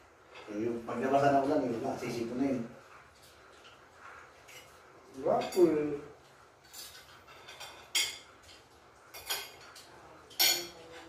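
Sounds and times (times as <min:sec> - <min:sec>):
cutlery clinking against plates: 0:03.1 - 0:11.0.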